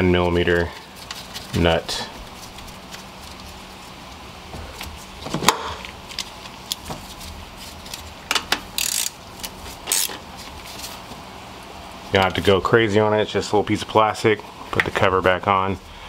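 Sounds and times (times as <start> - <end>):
ratchet clicking: 8.8 - 9.2.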